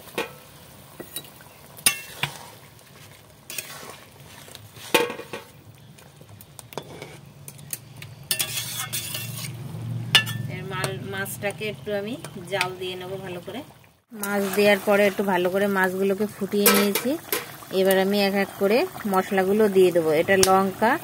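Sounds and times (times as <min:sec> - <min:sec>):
broth simmering: 0:00.0 - 0:21.0
spatula scraping metal pan: 0:03.5 - 0:05.5, 0:06.8 - 0:07.2, 0:08.2 - 0:10.5.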